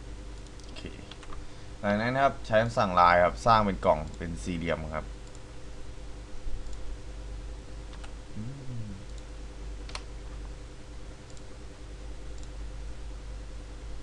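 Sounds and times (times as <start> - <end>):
steady low hum: 0.0 - 14.0
computer mouse clicking: 7.9 - 8.1, 9.0 - 10.4, 12.3 - 12.6.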